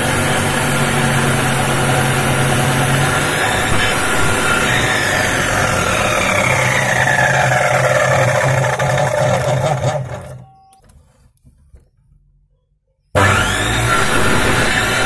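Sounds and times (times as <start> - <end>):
miter saw cutting a branch: 0.0 - 10.2, 13.2 - 15.0.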